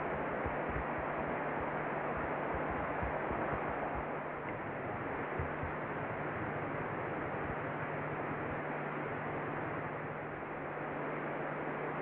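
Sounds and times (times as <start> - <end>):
low hum: 0.0 - 11.4
steady hiss: 0.0 - 12.0
irregular low thumps: 0.1 - 4.1, 5.0 - 5.8.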